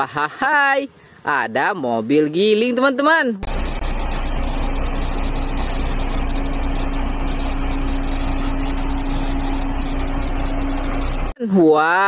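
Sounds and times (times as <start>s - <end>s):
road roller diesel engine running: 3.4s - 11.4s.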